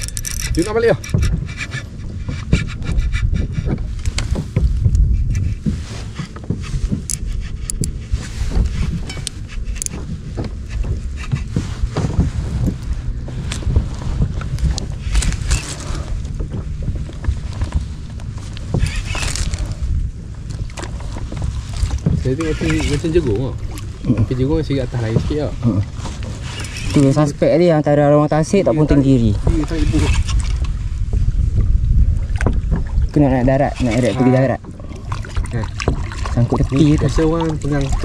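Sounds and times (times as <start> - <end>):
gear knocks and clicks: 0.0 - 27.6
wind rumbling on microphone: 0.0 - 38.0.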